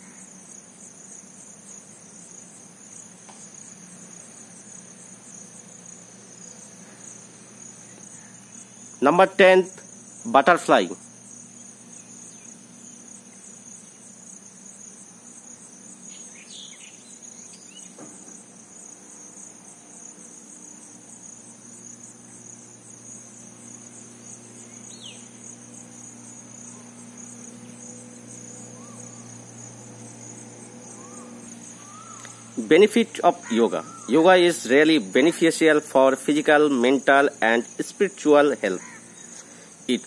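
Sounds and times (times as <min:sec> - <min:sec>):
high-pitched insect chirring: 0:00.0 - 0:40.0
low steady hum: 0:18.4 - 0:40.0
faint chirps: 0:24.1 - 0:35.1.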